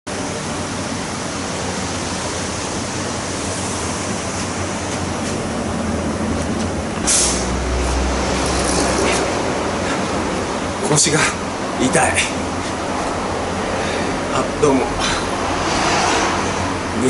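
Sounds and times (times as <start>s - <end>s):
steady rushing noise: 0.1s - 17.0s.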